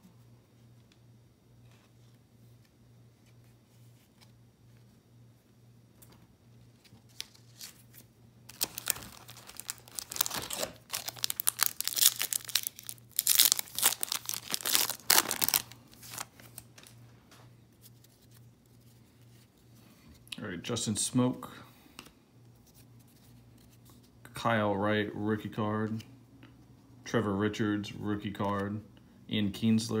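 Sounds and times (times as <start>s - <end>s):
foil wrapper tearing and crinkling: 8.5s - 16.7s.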